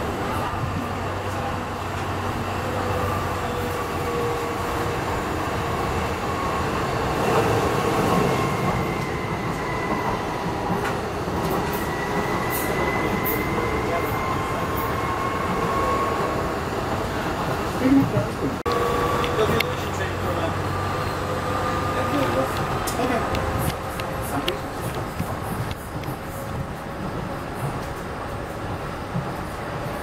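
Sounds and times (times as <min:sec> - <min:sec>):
train wheels rumbling on rail: 0:00.0 - 0:30.0.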